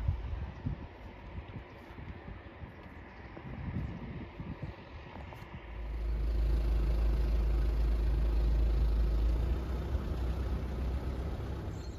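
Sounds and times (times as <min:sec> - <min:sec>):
car driving rumble inside cabin: 0:05.8 - 0:11.9.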